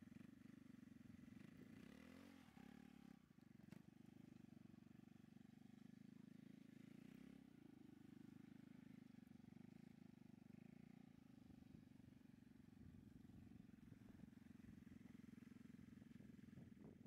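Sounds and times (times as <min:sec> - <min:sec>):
scooter engine running: 0:00.0 - 0:17.0.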